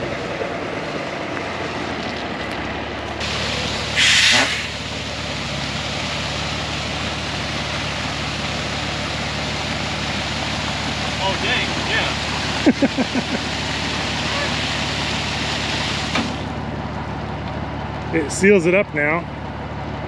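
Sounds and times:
truck engine running: 0:00.0 - 0:20.0
loud hiss: 0:03.2 - 0:05.0.

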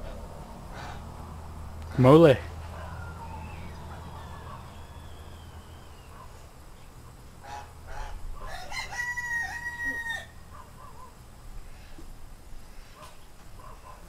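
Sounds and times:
rooster crowing: 0:02.6 - 0:06.3, 0:07.4 - 0:10.5.

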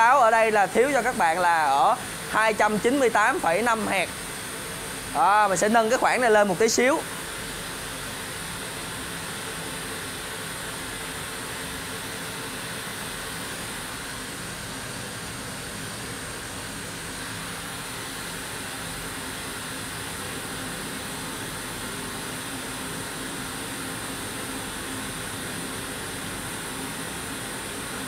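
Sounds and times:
pink noise through speakers: 0:00.0 - 0:07.4.

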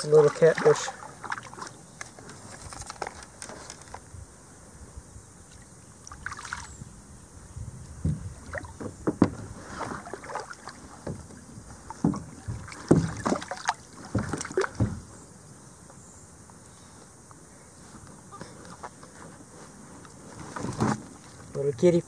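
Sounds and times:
knocks and scrapes on kayak hull: 0:07.9 - 0:15.3, 0:17.9 - 0:21.7.

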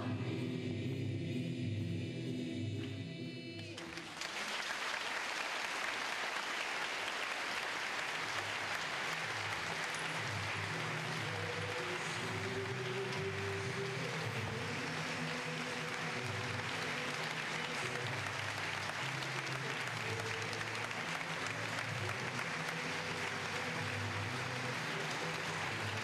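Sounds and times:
choir singing: 0:00.0 - 0:04.2, 0:10.0 - 0:26.0
audience applause: 0:03.8 - 0:26.0.

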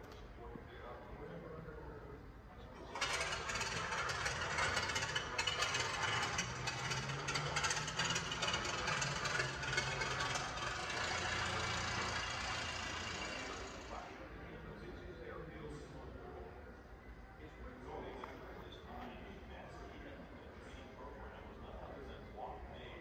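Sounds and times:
engine running roughly: 0:02.9 - 0:14.1.

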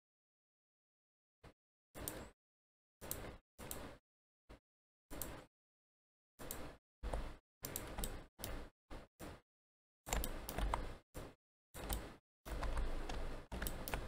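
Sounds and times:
computer mouse clicks: 0:02.0 - 0:02.3, 0:03.0 - 0:04.0, 0:05.1 - 0:05.5, 0:06.4 - 0:08.6, 0:10.1 - 0:14.0.

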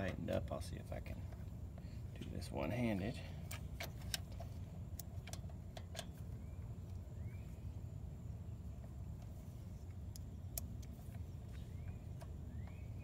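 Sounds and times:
low steady rumble: 0:00.0 - 0:13.0
faint rising chirps: 0:06.1 - 0:13.0.

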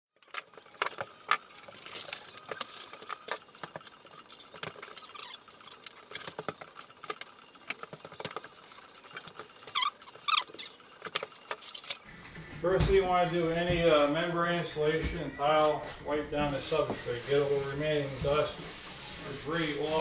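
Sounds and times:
short squeaks: 0:09.1 - 0:12.0.

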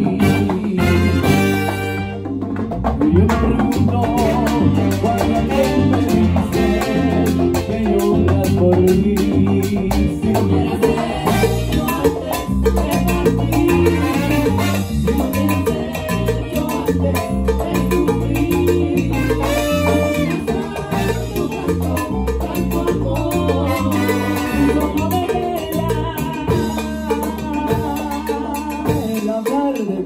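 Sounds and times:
bongos: 0:00.0 - 0:30.0
salsa band playing: 0:00.0 - 0:30.0
cowbell: 0:11.3 - 0:25.6.

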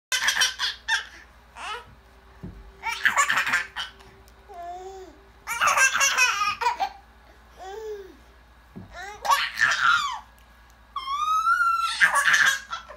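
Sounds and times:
baby giggling: 0:02.8 - 0:04.0, 0:05.5 - 0:07.0.

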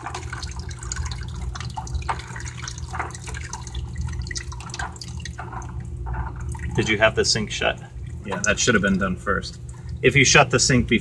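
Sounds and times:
hot water pouring into bucket: 0:00.0 - 0:05.8.

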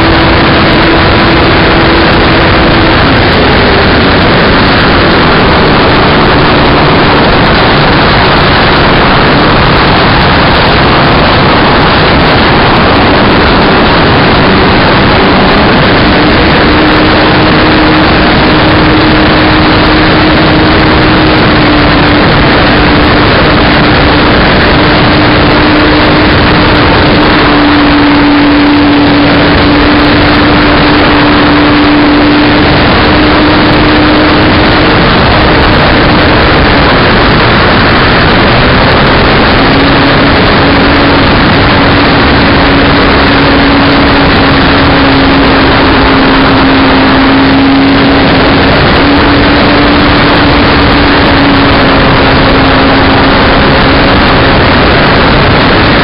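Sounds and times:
wind noise on microphone: 0:00.0 - 0:56.0
model aircraft motor drone: 0:12.8 - 0:56.0.

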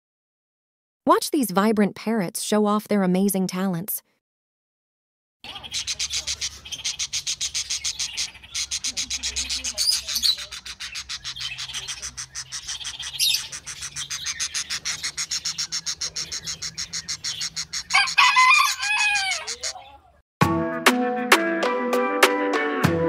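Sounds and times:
parakeet chattering: 0:05.5 - 0:19.9.

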